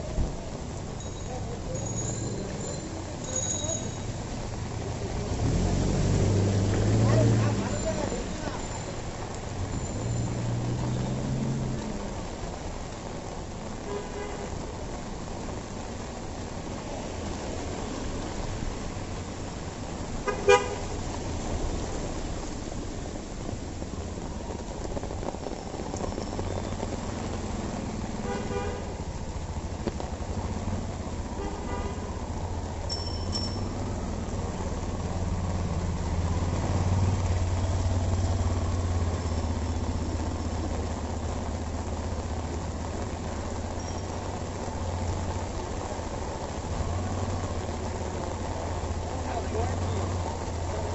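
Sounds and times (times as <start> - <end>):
rain hiss: 0.0 - 50.9
tyres on wet road: 0.0 - 50.9
vehicle engines running: 3.8 - 13.0, 32.3 - 50.9
vehicle horns tooting: 20.2 - 20.9, 28.2 - 28.9.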